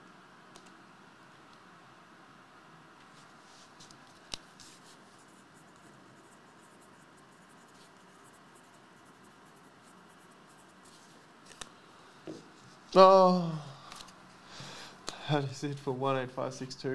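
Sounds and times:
pen scratching on paper: 4.6 - 11.3.

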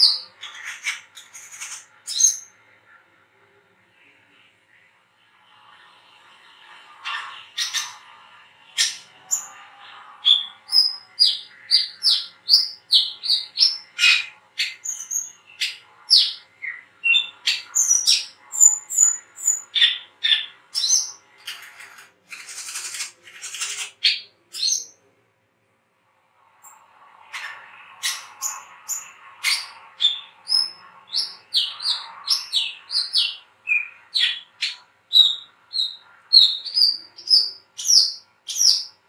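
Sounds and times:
bird chirping and whistling: 28.0 - 38.9.

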